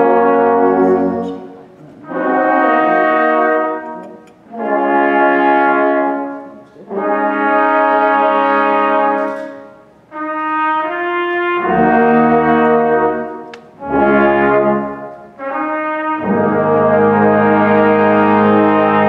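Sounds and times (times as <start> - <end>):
brass ensemble playing chords: 0.0 - 19.0
tuba low notes: 0.0 - 19.0.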